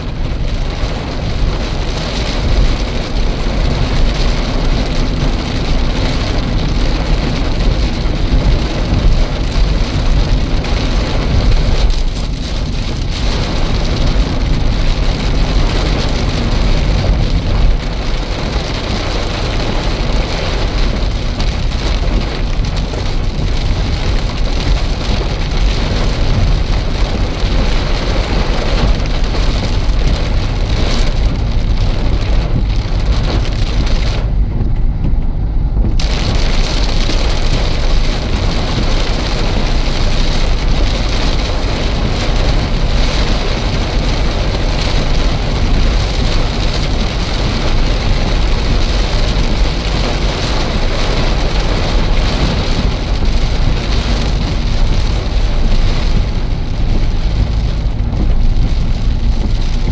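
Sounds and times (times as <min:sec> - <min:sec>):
car road and wind noise: 0:00.0 - 0:59.9.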